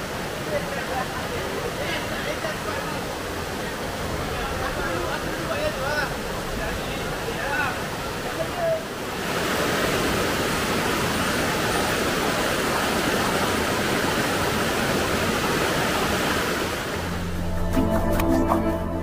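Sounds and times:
river water rushing over rocks: 0.0 - 17.4
music: 17.0 - 19.0.

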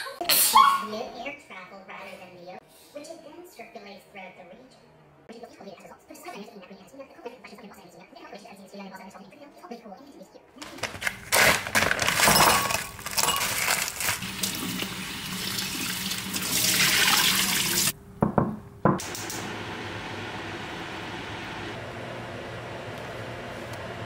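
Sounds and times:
water pouring into a pot: 13.6 - 17.9.

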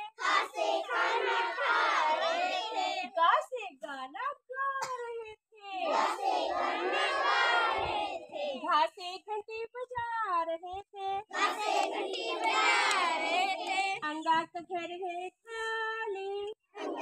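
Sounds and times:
children singing together: 0.0 - 3.1, 5.9 - 8.6, 11.3 - 14.0, 16.8 - 17.0.

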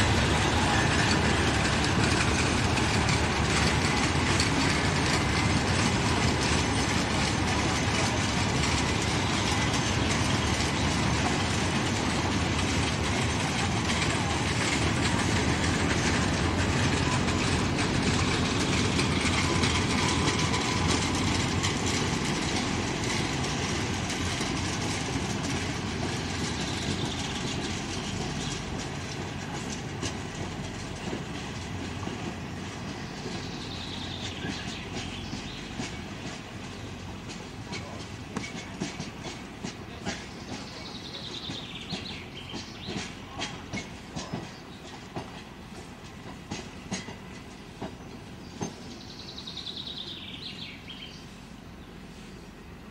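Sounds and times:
wheels clicking over rail joints: 0.0 - 51.2
train rumbling: 0.0 - 52.9.

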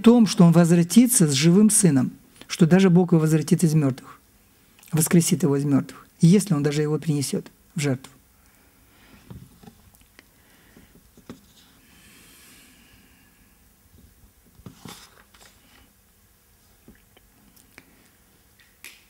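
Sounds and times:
paper rustling: 14.6 - 15.9.

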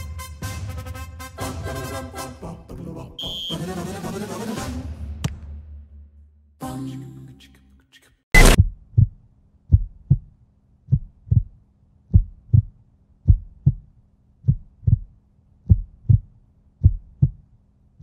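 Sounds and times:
heartbeat thumps: 8.4 - 10.3, 10.9 - 17.4.

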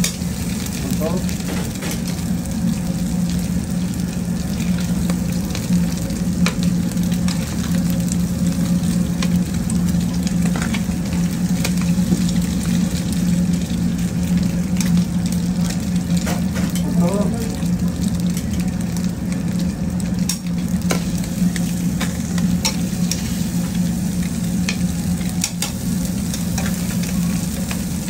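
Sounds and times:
meat sizzling on a griddle: 0.0 - 28.0
steady low hum: 0.0 - 28.0
metal tongs clicking on griddle: 20.2 - 21.0, 25.4 - 25.8.

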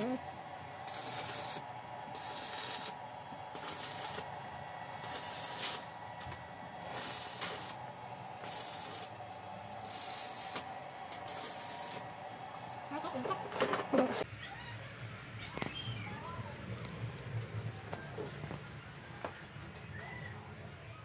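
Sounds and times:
arc welding crackling hiss: 0.0 - 14.2.

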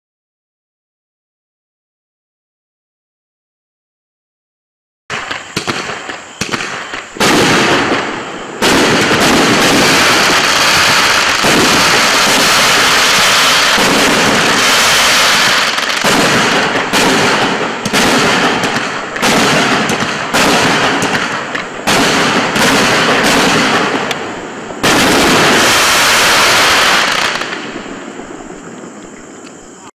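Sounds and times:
firework launches and bursts: 5.1 - 28.3
firework crackling: 5.1 - 28.8.

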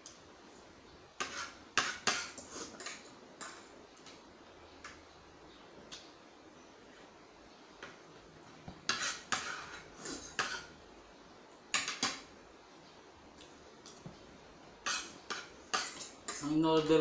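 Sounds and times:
cutlery clinking on china plate: 14.8 - 16.5.

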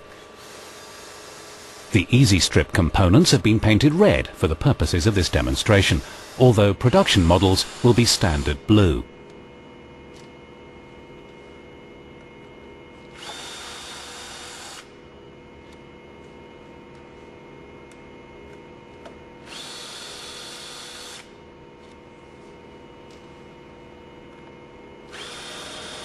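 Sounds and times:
cordless drill whining: 0.4 - 1.9, 5.2 - 6.5, 7.4 - 8.6, 13.1 - 14.9, 19.4 - 21.3, 25.1 - 26.0.

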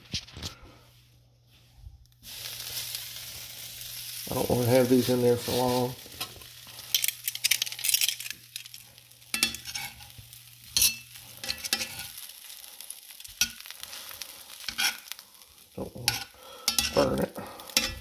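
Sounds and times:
butter sizzling in a skillet: 2.1 - 18.0
metal tongs scraping in a pan: 4.4 - 15.2, 16.0 - 18.0.

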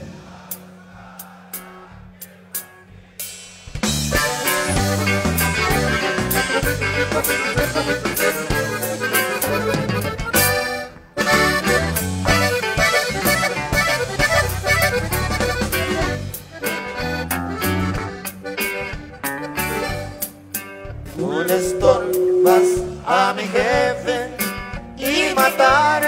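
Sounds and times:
electric bass: 3.6 - 26.0
button accordion melody: 3.9 - 24.2.

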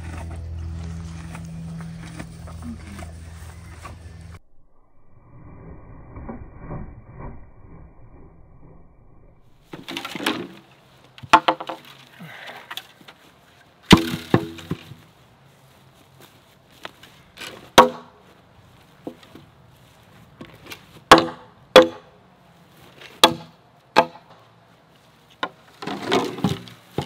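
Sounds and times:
low rumbling: 0.0 - 9.7
bamboo poles clattering: 9.6 - 15.1, 16.8 - 18.3, 20.3 - 22.1, 25.3 - 27.0.

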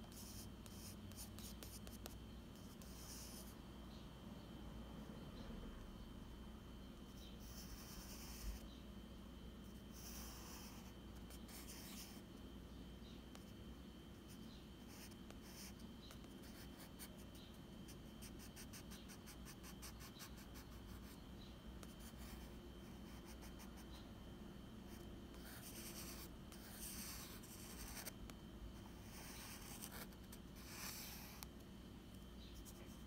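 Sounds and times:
pencil scratching on paper: 0.1 - 3.5, 7.4 - 8.6, 9.7 - 12.2, 14.2 - 17.3, 24.9 - 28.2, 28.8 - 31.5.

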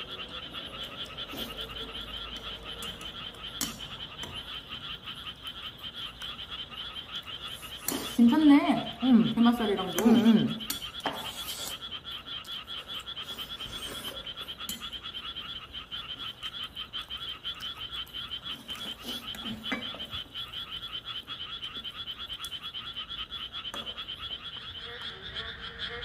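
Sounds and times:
frogs croaking: 0.0 - 26.0
chopsticks clicking on dishes: 0.8 - 4.6, 9.6 - 11.8, 13.6 - 15.0.

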